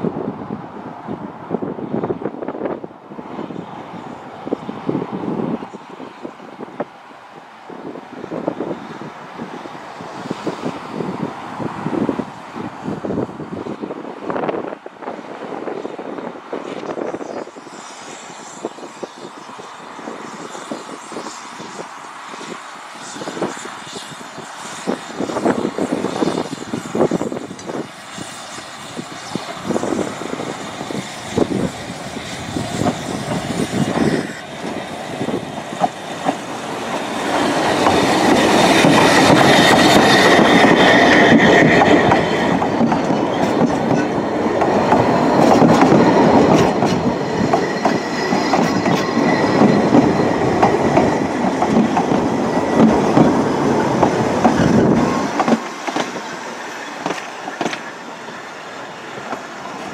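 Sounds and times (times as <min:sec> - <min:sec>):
wheels clattering on rails: 0:32.6 - 0:59.9
steam locomotive knocks: 0:35.3 - 0:56.4, 0:57.0 - 0:57.9.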